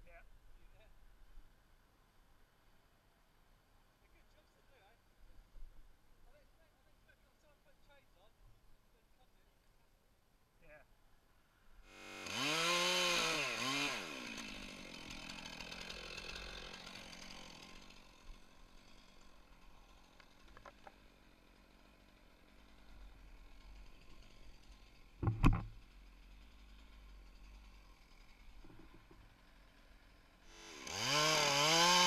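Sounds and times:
chainsaw revving: 0:11.9 - 0:32.0.

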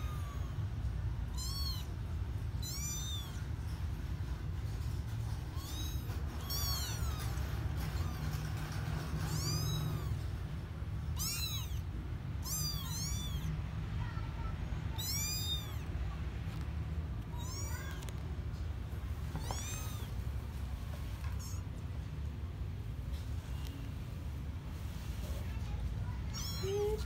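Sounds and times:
kittens mewing: 0:00.0 - 0:00.7, 0:01.3 - 0:03.8, 0:05.3 - 0:13.6, 0:14.8 - 0:16.1, 0:17.2 - 0:18.3, 0:19.2 - 0:20.4, 0:21.2 - 0:21.9, 0:26.1 - 0:27.0.

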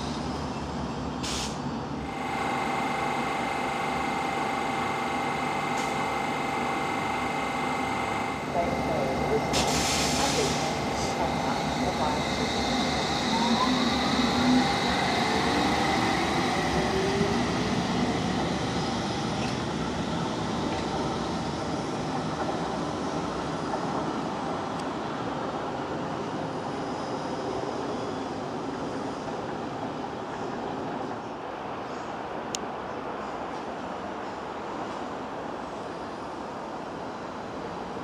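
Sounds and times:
train wheels rumbling on rail: 0:00.0 - 0:38.0
train motor whine: 0:02.0 - 0:17.6.

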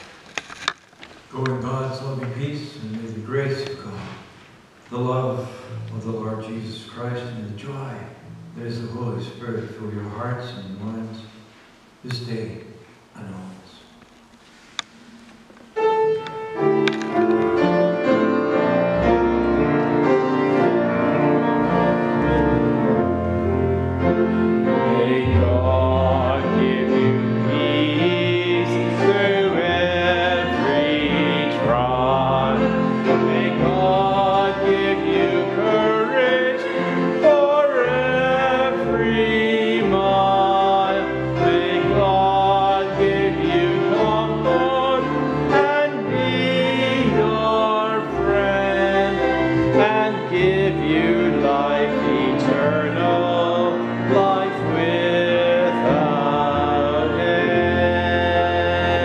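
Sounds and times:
slow hymn singing: 0:01.0 - 0:59.0
instrumental accompaniment: 0:08.1 - 0:10.0, 0:14.1 - 0:59.0.

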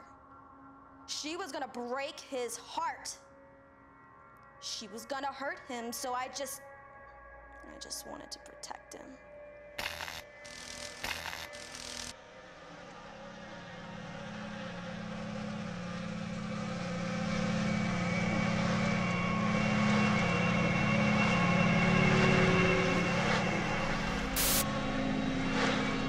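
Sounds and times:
low pulsing drone: 0:07.2 - 0:26.0
high sustained tones: 0:09.8 - 0:12.1, 0:24.4 - 0:24.6.

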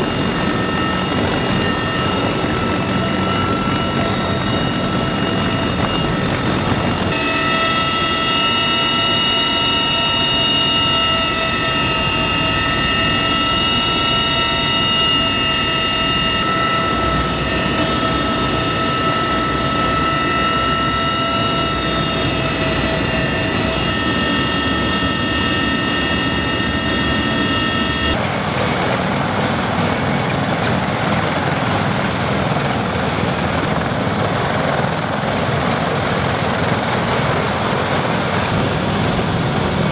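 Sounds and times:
helicopter turbine whine: 0:00.0 - 0:39.9.

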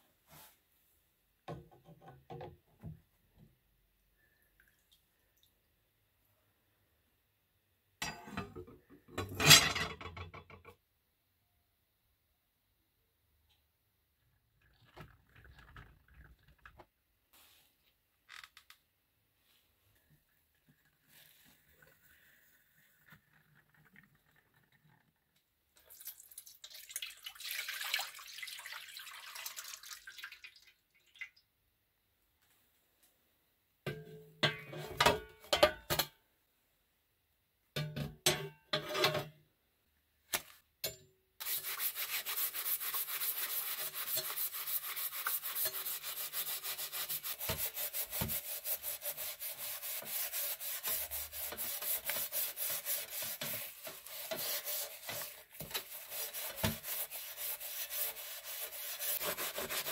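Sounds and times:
liquid pouring into metal basin: 0:21.8 - 0:31.4
scouring pad scrubbing metal: 0:41.4 - 0:59.9.

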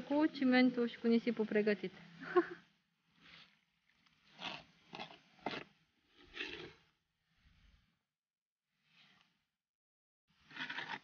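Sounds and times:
gritty scrapes of sand and cement: 0:04.2 - 0:06.9, 0:10.4 - 0:11.0.

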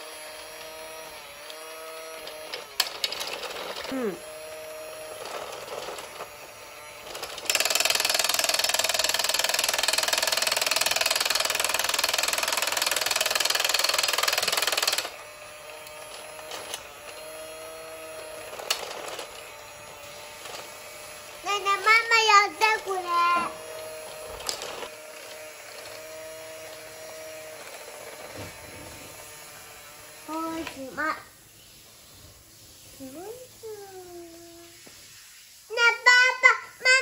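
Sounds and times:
toy motor whirring: 0:00.0 - 0:37.0
plastic parts rattling: 0:02.3 - 0:04.0, 0:22.8 - 0:29.0
child's voice: 0:03.8 - 0:04.3, 0:21.4 - 0:23.6, 0:30.3 - 0:31.3, 0:33.0 - 0:34.8, 0:35.7 - 0:37.0.

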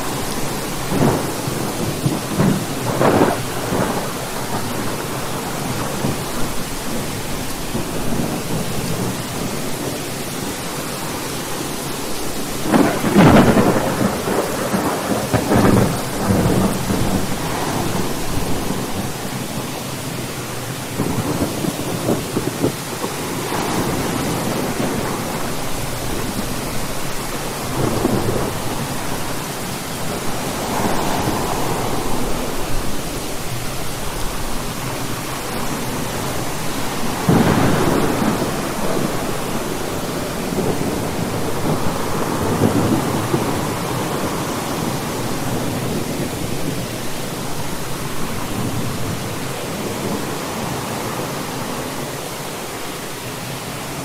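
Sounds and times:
thunder rumbling: 0:00.0 - 0:52.6
steady rain: 0:00.0 - 0:54.0.

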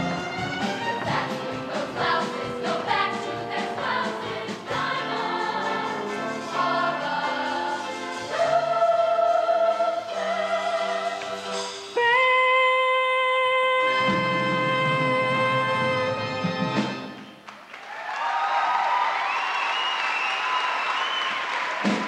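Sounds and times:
choir singing: 0:00.0 - 0:12.2.

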